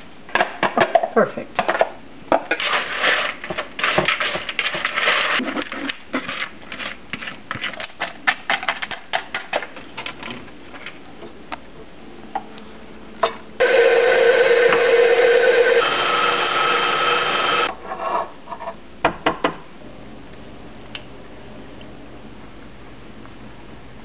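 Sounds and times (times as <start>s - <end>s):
crumbs stirred and scraped in bowl: 2.5s - 10.0s
crumbs crinkling in foil pan: 2.5s - 11.1s
stand mixer motor whine: 13.6s - 17.7s.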